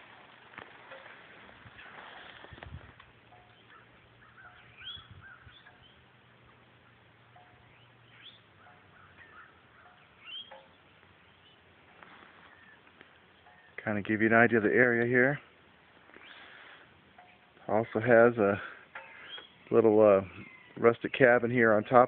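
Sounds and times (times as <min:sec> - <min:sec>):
low repeated bird notes: 0:03.2 - 0:22.0
bird chirps sweeping upward: 0:03.5 - 0:06.0, 0:07.6 - 0:11.7, 0:19.0 - 0:20.8.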